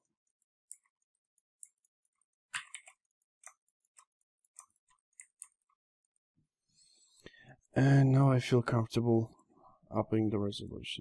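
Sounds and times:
faint irregular clicks: 0:00.0 - 0:06.4.

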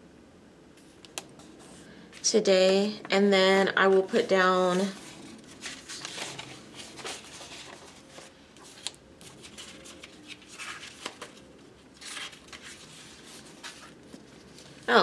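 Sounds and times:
paper stickers rustling: 0:04.2 - 0:14.9.

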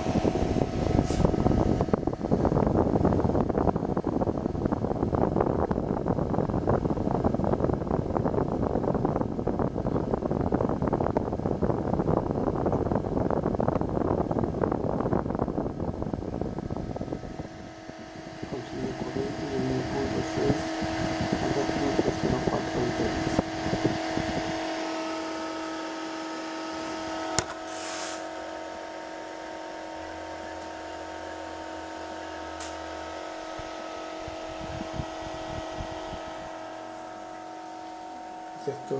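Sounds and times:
cooling fan hum: 0:00.0 - 0:38.9
low rumbling from camera handling: 0:27.3 - 0:28.1.

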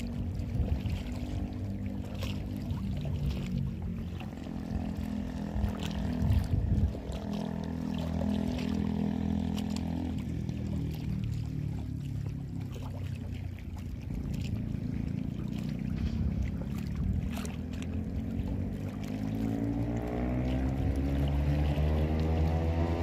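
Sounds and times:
motorboat engine running: 0:00.0 - 0:23.0.

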